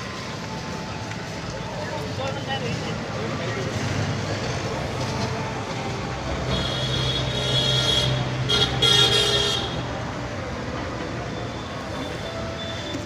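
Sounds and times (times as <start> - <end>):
road traffic noise: 0.0 - 13.0
vehicle horn honking: 6.5 - 9.8.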